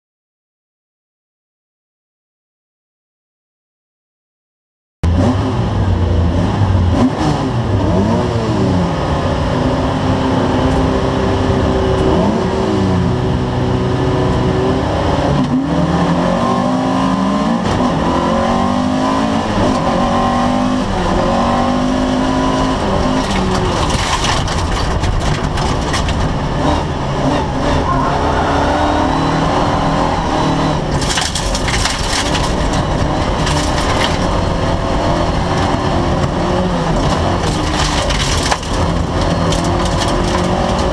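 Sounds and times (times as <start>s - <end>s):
car engine revving hard: 5.1s - 40.9s
gravel rattling against car body: 20.8s - 28.1s, 30.7s - 40.9s.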